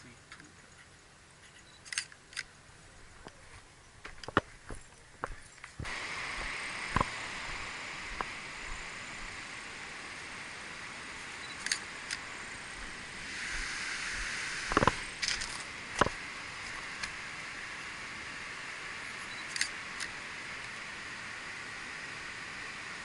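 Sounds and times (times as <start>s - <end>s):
steady high hiss: 0.0s - 23.0s
camera handling clicks: 11.6s - 12.2s, 14.7s - 16.2s.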